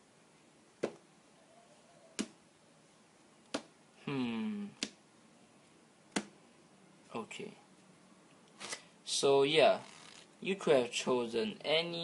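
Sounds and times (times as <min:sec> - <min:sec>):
playing cards snapping: 0:02.2 - 0:02.4, 0:04.8 - 0:05.0
person humming: 0:04.0 - 0:04.9.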